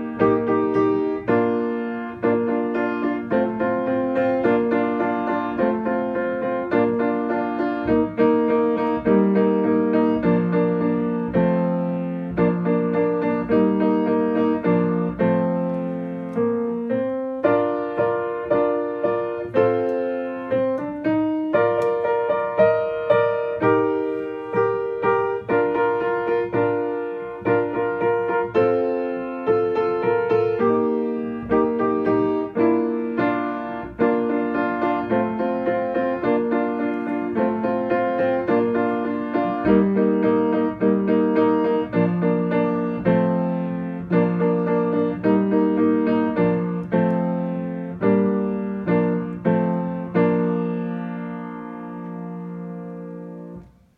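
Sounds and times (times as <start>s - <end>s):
piano chords and melody: 0.0s - 53.9s.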